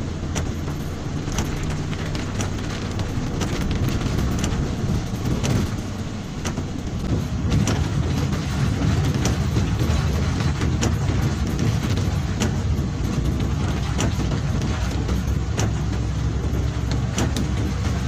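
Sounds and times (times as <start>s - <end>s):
engine and tyres rumbling: 0.0s - 18.0s
light clicks and rattles: 0.0s - 18.0s.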